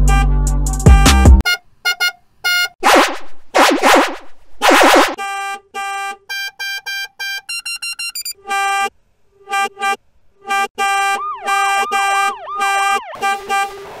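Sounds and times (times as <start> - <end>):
car horn beeps and honks: 0.0 - 3.2, 3.8 - 14.0
swooping tone sliding up and down: 2.8 - 5.2.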